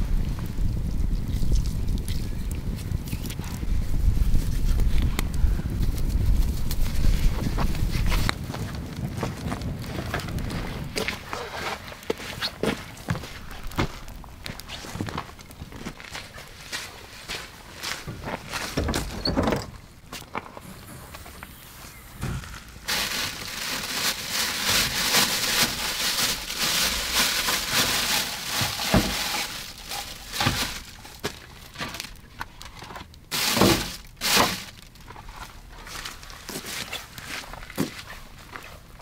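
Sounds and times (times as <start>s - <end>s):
rustling: 9.9s - 38.9s
items knocking and clattering: 18.1s - 19.8s, 26.6s - 32.0s.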